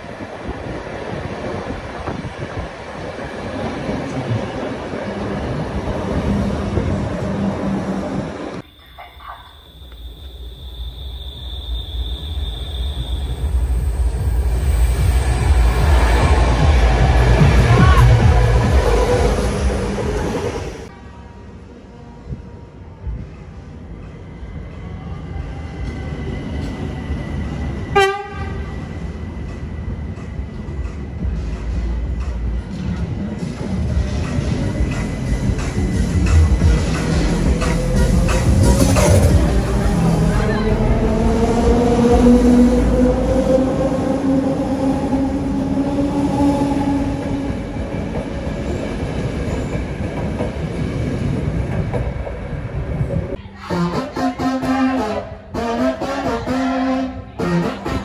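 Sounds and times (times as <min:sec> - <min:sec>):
train wheels rumbling on rails: 0:11.5 - 0:20.9, 0:22.2 - 0:53.4
train horn blast: 0:27.9 - 0:28.7, 0:53.6 - 0:58.0.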